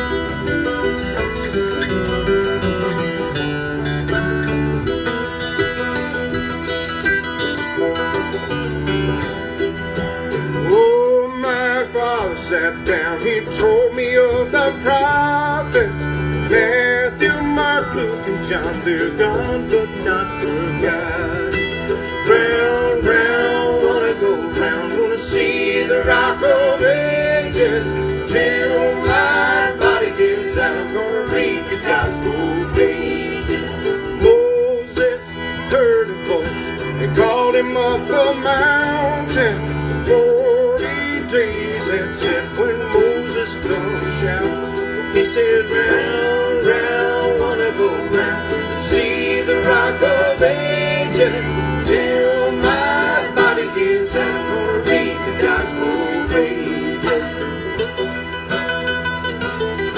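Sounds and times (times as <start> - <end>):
bluegrass band playing: 0.0 - 59.9
man singing: 10.6 - 57.8.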